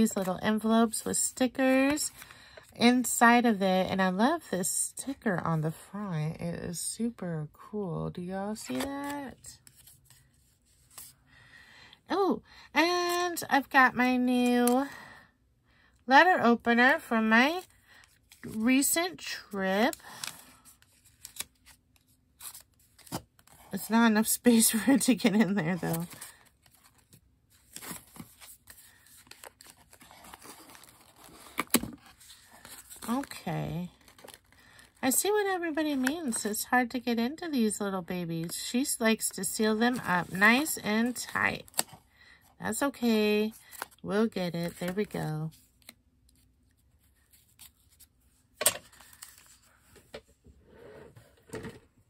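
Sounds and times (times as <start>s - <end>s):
paper rustling: 20.0s - 23.7s, 25.3s - 33.4s, 45.8s - 50.2s
paper envelope scraping: 25.7s - 33.4s.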